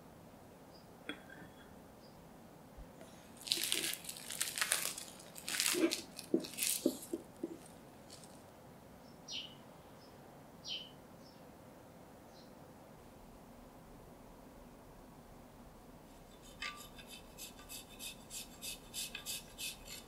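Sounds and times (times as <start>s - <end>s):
plastic wrap crinkling: 3.4s - 8.4s.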